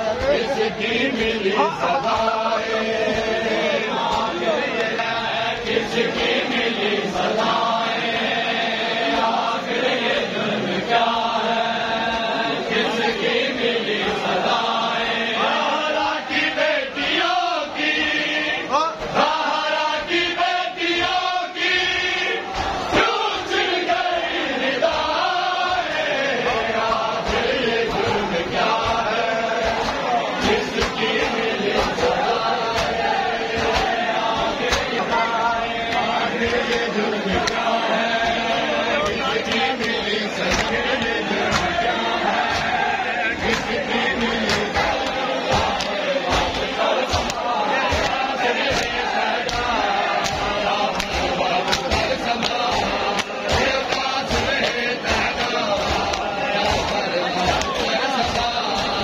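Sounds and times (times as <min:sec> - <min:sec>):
crowd of men chanting: 0:00.0 - 0:59.0
hand slaps on chests: 0:04.0 - 0:07.6, 0:24.9 - 0:38.4, 0:39.0 - 0:59.0.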